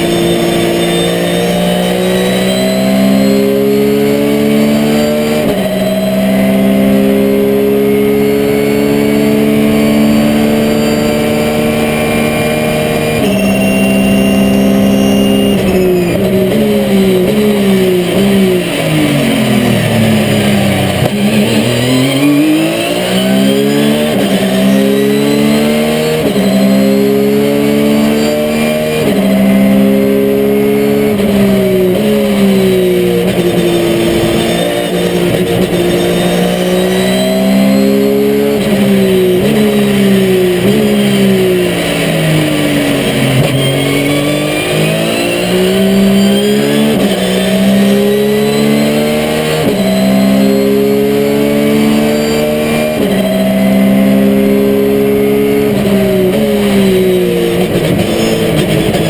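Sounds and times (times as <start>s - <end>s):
racing engine revving: 0.0s - 59.0s.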